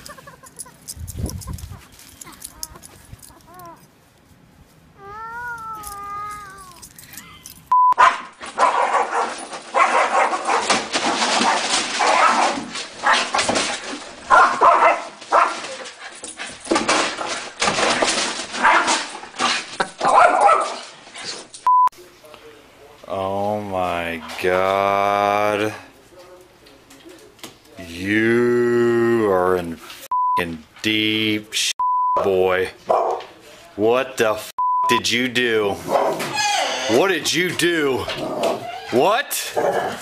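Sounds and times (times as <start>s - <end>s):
dog whining: 0.6s - 3.9s, 5.0s - 7.5s, 36.2s - 37.0s, 38.2s - 39.0s
small dog barking: 8.0s - 10.7s, 14.3s - 15.6s, 20.1s - 20.8s, 32.9s - 33.2s.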